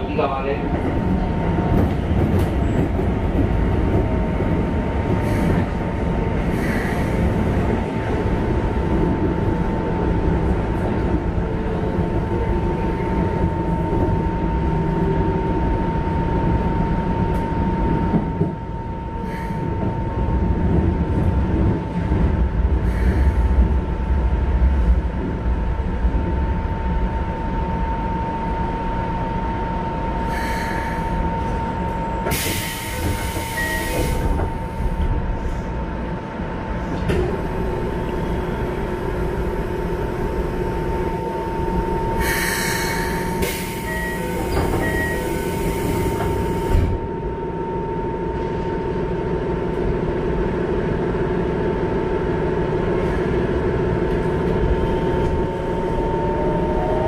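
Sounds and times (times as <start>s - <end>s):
electric train rumble and whine: 0.0s - 57.0s
train doors sliding open: 30.5s - 35.6s, 36.8s - 40.5s, 41.2s - 47.1s.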